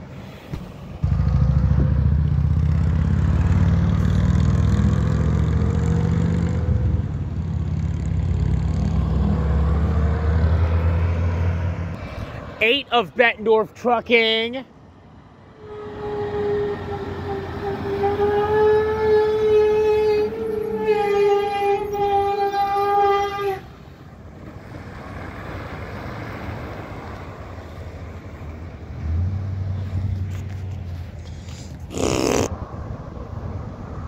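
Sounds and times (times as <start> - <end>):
truck engine and tyres rumbling: 0.0 - 34.0
truck air horn blast: 15.6 - 23.8.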